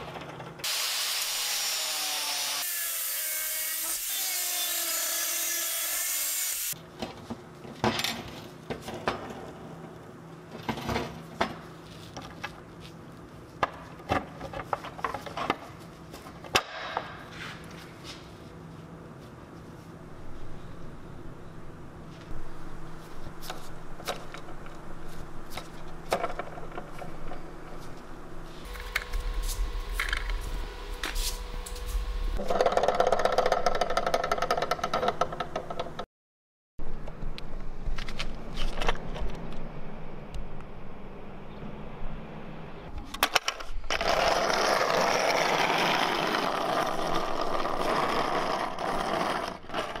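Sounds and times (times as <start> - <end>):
steady hum: 17.0 - 32.4
low rumble: 28.6 - 32.4
skateboard parts clicking: 32.4 - 36.0
metal skateboard wheels rolling on asphalt: 43.2 - 50.0.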